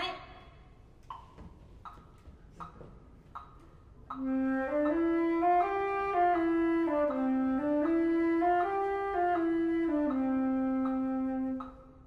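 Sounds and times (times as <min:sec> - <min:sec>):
soft ticks: 0:01.0 - 0:04.2, 0:10.8 - 0:11.9
flute playing a scale: 0:04.1 - 0:12.0.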